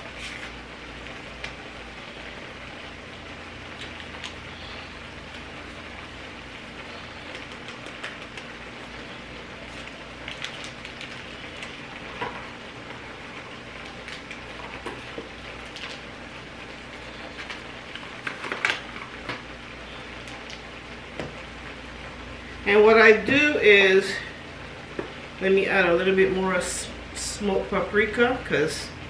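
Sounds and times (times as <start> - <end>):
vegetables frying in oil: 0.0 - 29.0.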